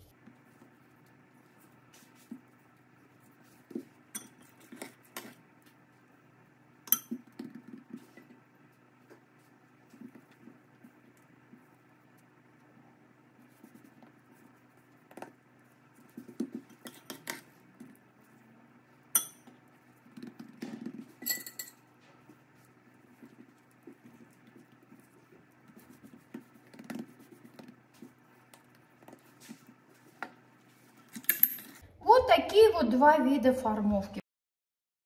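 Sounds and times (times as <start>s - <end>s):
hands patting dough: 7.0s - 18.4s, 22.1s - 30.8s
light ringing clinks: 21.2s - 21.8s.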